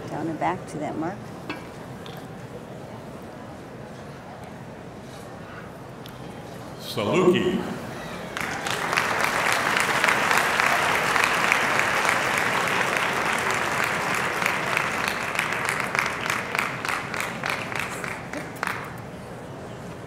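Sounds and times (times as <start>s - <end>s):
audience applauding: 8.2s - 19.0s.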